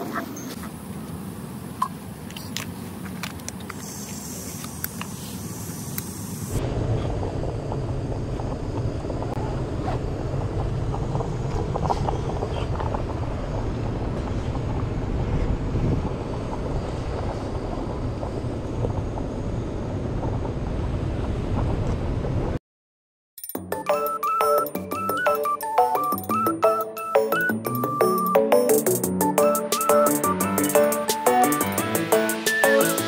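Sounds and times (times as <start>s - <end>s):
jet aircraft low rumble: 0.0s - 22.6s
wind on microphone: 6.6s - 22.6s.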